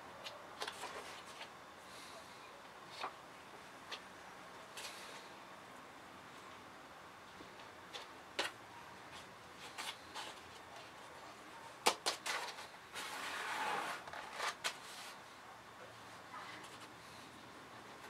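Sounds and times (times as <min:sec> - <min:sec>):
compost taps and rustles: 0:07.3 - 0:11.1, 0:11.8 - 0:12.8
compost scraping on plastic tray: 0:12.3 - 0:15.2.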